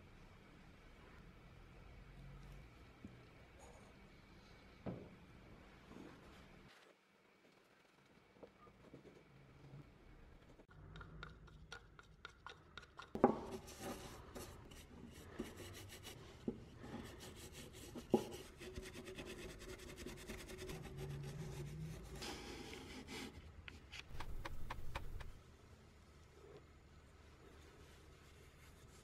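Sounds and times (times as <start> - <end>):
stick stirring oil in plastic cup: 10.7 - 15.6
brush rubbing on wood: 24.1 - 25.4.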